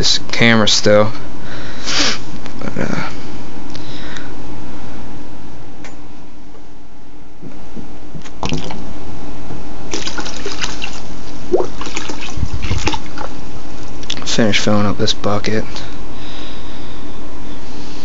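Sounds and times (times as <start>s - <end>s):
water running from hose into bucket: 9.9s - 13.3s.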